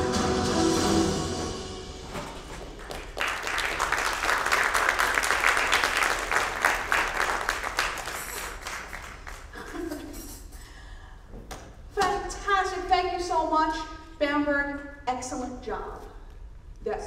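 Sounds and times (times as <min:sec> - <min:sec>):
audience applauding: 0:02.4 - 0:09.9.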